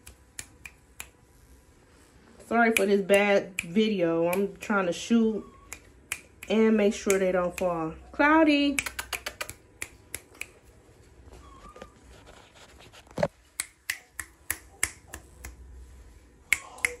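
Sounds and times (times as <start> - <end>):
sharp clicks: 8.8 - 10.6.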